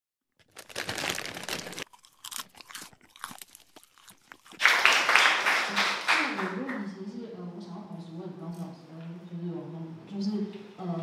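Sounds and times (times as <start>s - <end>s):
popcorn crackling and popping: 0.3s - 5.0s.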